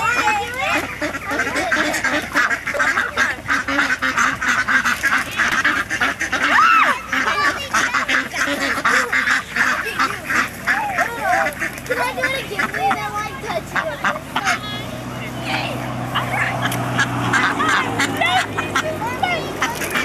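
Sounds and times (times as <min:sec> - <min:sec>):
ducks quacking: 0:00.0 - 0:20.0.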